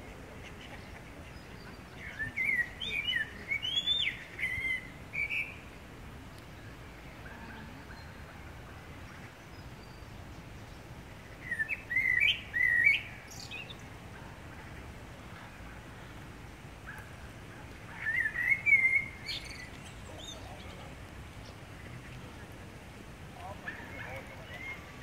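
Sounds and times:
blackbird singing: 2.0 - 5.6, 11.4 - 13.8, 18.0 - 21.6.

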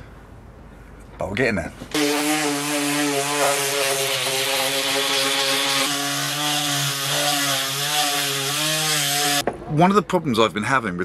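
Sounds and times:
sander motor hum: 1.9 - 9.4
sanding pad scratching wood: 1.9 - 9.4.

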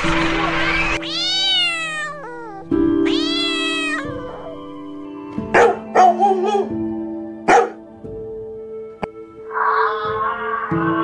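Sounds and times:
soft background music: 0.0 - 11.0
cat meowing: 1.0 - 5.0.

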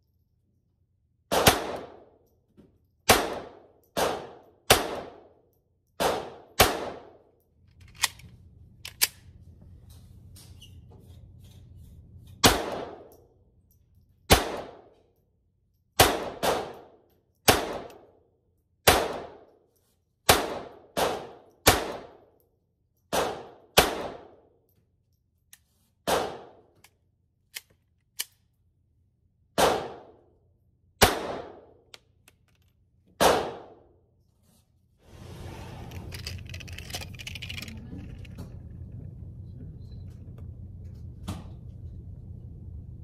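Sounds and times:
pistol shots with echo: 1.3 - 2.1, 3.1 - 5.3, 6.0 - 7.2, 12.4 - 13.1, 14.3 - 14.8, 16.0 - 16.9, 17.5 - 18.0, 18.8 - 19.4, 20.3 - 22.2, 23.1 - 24.4, 26.1 - 26.6, 29.6 - 30.2, 31.0 - 31.8, 33.2 - 33.8.

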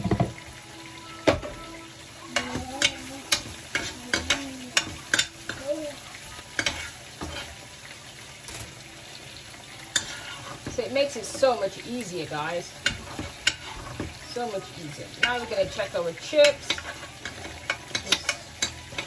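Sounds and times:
steak sizzling in pan: 0.0 - 19.0
metal spoon clinking on pan: 16.4 - 19.0.

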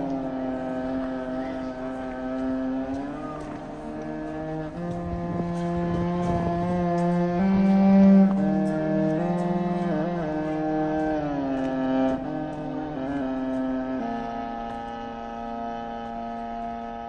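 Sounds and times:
slow low held music notes: 0.0 - 17.0.

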